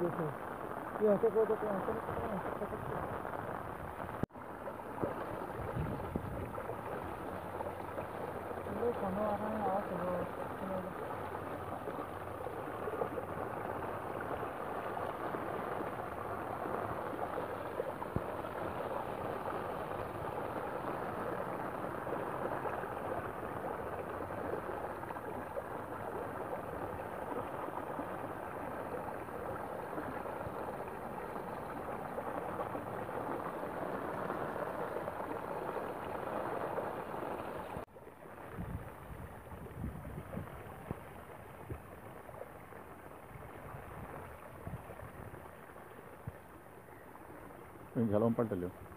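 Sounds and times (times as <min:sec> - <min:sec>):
stream water flowing: 0:00.0 - 0:48.9.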